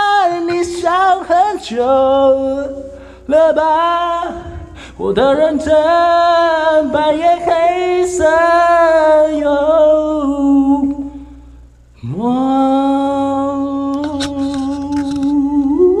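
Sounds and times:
man singing unaccompanied: 0:00.0 - 0:11.2, 0:12.0 - 0:16.0.

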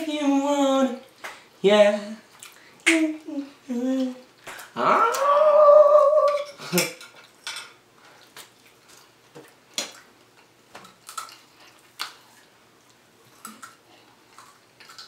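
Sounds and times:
faint chewing: 0:02.2 - 0:02.8, 0:08.0 - 0:15.0.

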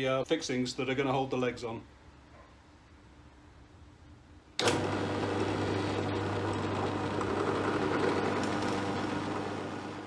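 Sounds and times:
drill press motor humming: 0:04.6 - 0:10.0.

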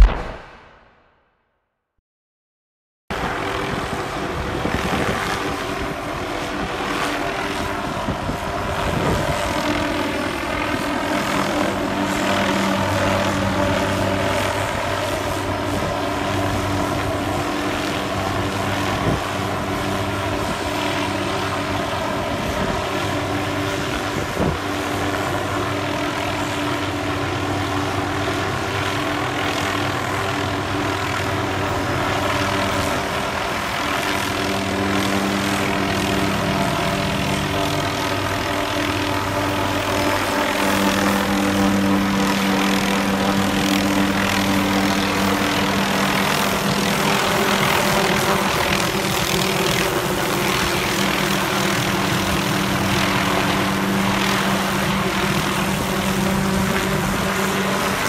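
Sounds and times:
helicopter rotor and turbine hum: 0:00.0 - 0:00.9, 0:03.1 - 0:58.0
low hum: 0:00.0 - 0:01.1.

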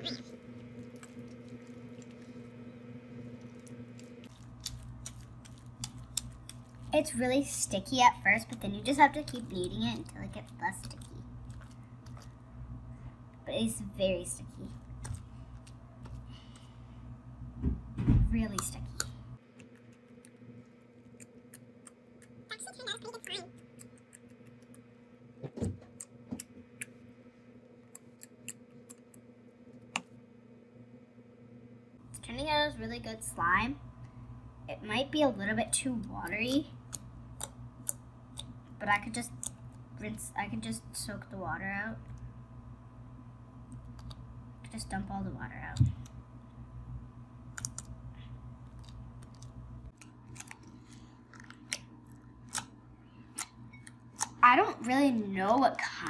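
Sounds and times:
slime squishing: 0:00.0 - 0:12.6, 0:13.8 - 0:16.8, 0:47.5 - 0:56.0.

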